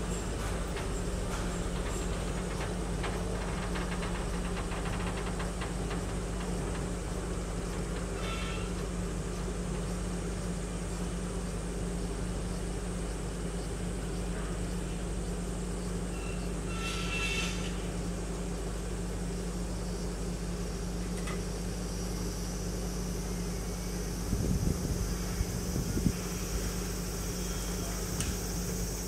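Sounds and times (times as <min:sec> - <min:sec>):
wheels clicking on rail: 0:00.0 - 0:09.5
freight train running on track: 0:00.0 - 0:29.0.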